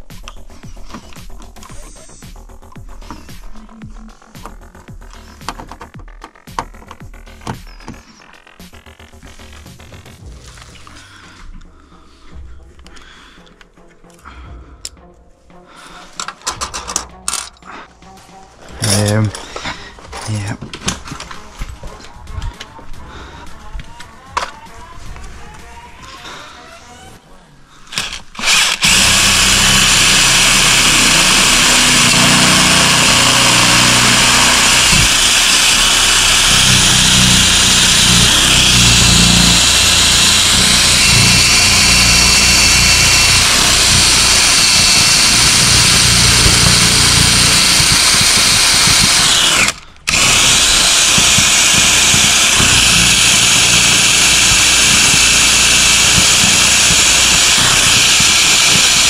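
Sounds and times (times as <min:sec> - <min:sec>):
cordless drill boring into metal: 0:27.9 - 0:59.0.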